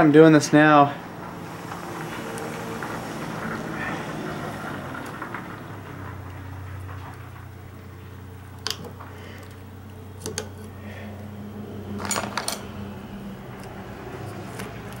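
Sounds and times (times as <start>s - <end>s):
steady low hum: 0.0s - 15.0s
screwdriver clinking on metal: 10.2s - 10.7s, 12.0s - 12.8s.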